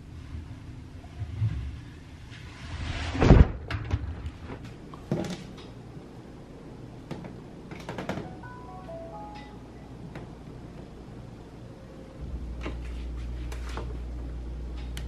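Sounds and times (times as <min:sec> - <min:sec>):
swish: 0:02.3 - 0:03.7.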